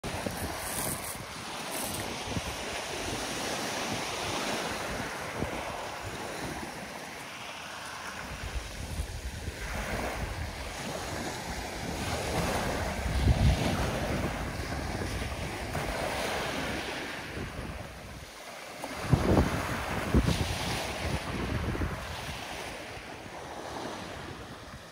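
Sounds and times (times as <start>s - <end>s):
wind buffeting microphone: 0.0s - 6.9s, 8.1s - 18.3s, 18.9s - 24.9s
waves washing onto pebbles: 0.0s - 24.9s.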